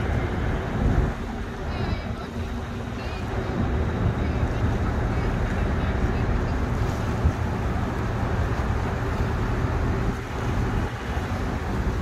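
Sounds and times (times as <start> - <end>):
low city rumble: 0.0 - 12.0
wind buffeting microphone: 0.0 - 12.0.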